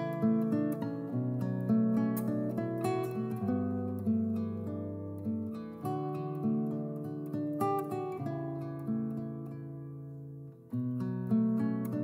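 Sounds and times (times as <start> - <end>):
strummed acoustic guitar: 0.0 - 12.0.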